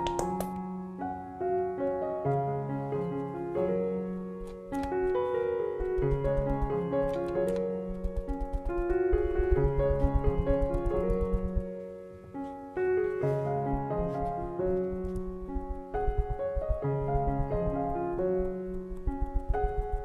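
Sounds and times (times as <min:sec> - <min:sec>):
instrumental piano music: 0:00.0 - 0:20.0.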